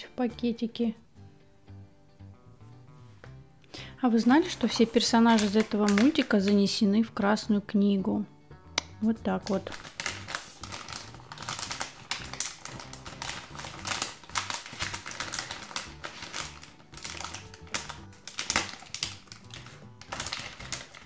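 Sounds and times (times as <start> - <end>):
background music with bass: 0.0 - 5.2, 6.6 - 9.6
plastic foil packet crinkling: 4.2 - 6.7, 9.4 - 21.0.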